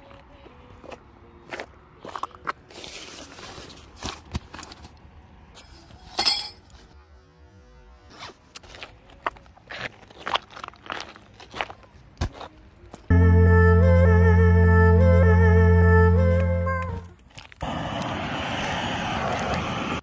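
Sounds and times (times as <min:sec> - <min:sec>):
footsteps on pebbles: 0:08.5 - 0:13.1, 0:17.1 - 0:17.6.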